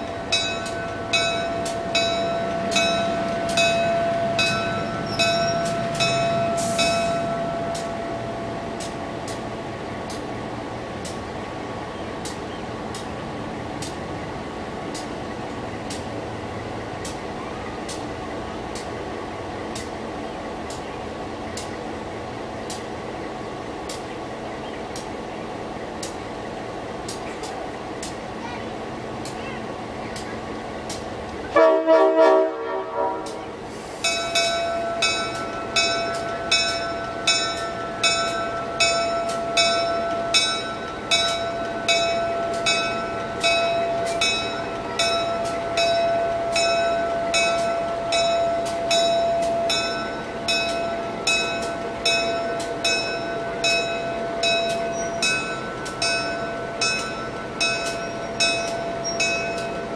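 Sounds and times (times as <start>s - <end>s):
locomotive bell ringing: 0.0s - 8.9s, 34.0s - 59.9s
diesel locomotive horn blast: 31.5s - 33.6s.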